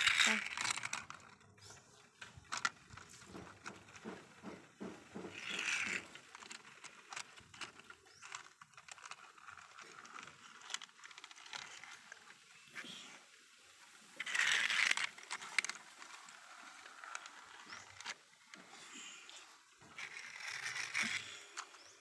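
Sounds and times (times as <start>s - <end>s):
toy cars clicking on plastic: 0.0s - 22.0s.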